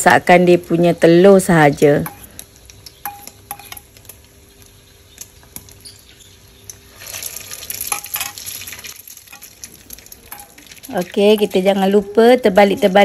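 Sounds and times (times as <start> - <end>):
hot oil sizzling: 0.0 - 13.0
metal spoon clinking in bowl: 3.0 - 3.9, 10.3 - 10.6.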